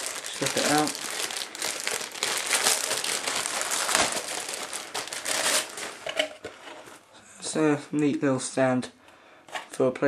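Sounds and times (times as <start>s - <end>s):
plastic packaging crinkling: 0.0s - 7.1s.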